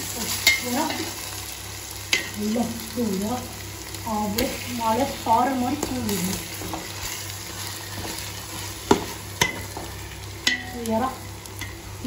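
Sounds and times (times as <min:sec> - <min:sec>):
prawns sizzling in a pot: 0:00.0 - 0:12.0
pot ringing: 0:10.4 - 0:10.8.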